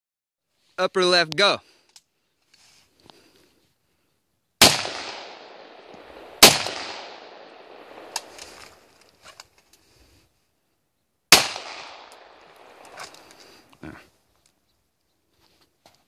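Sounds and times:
rifle shots with echo: 0:04.6 - 0:08.9, 0:11.3 - 0:13.3.

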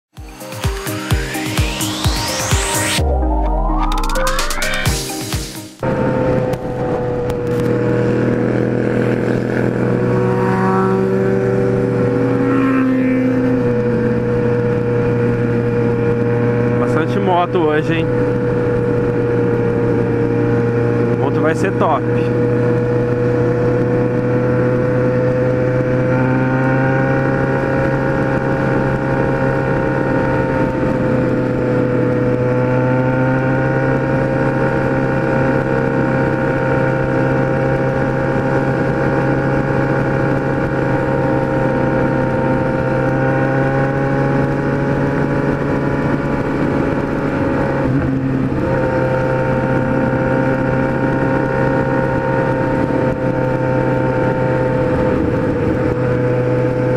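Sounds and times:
motorcycle engine cruising: 0:00.1 - 0:56.9.

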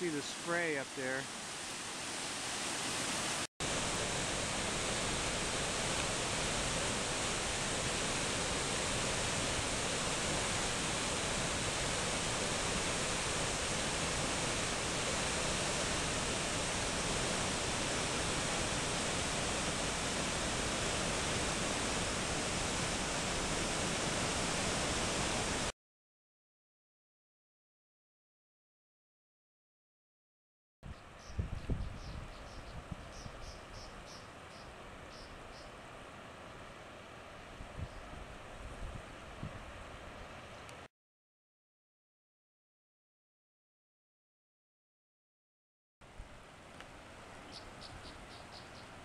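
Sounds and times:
river rushing over falls: 0:00.0 - 0:25.7.

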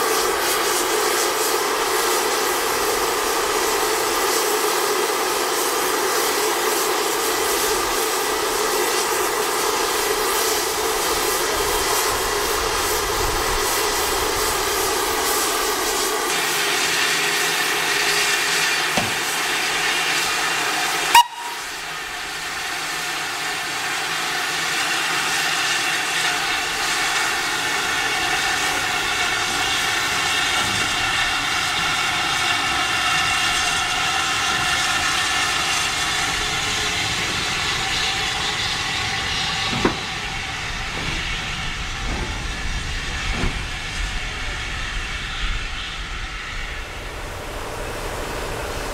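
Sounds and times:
steam locomotive hissing: 0:00.0 - 0:48.9.

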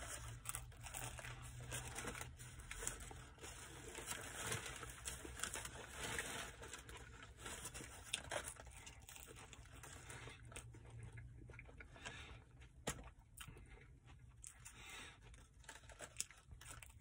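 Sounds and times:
paper wrapper crinkling: 0:00.0 - 0:10.6
chewing: 0:08.0 - 0:17.0.

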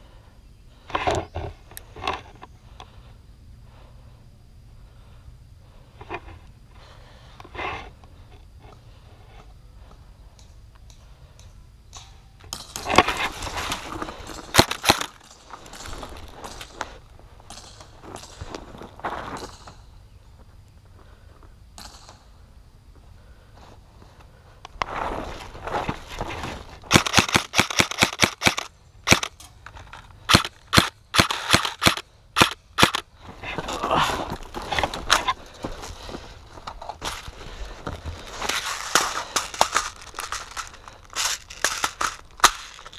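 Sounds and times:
gravel crunching underfoot: 0:12.5 - 0:22.0, 0:22.9 - 0:27.6, 0:28.3 - 0:42.9
airsoft rifle shots: 0:26.9 - 0:29.4, 0:30.3 - 0:33.0
sharp clicks: 0:26.9 - 0:33.1
footsteps: 0:32.9 - 0:42.9
gear rustling: 0:32.9 - 0:42.9.

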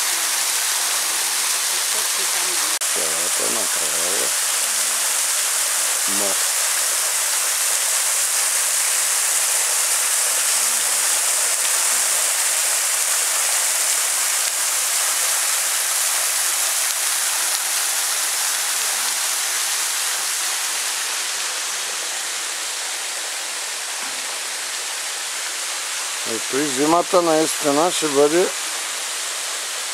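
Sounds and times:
thin waterfall splashing onto stones: 0:00.4 - 0:20.7.

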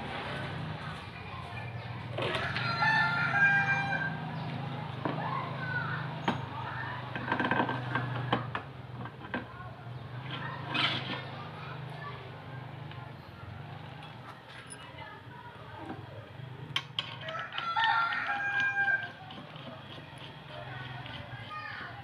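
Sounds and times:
rooster crowing: 0:02.4 - 0:04.2, 0:17.2 - 0:19.2.

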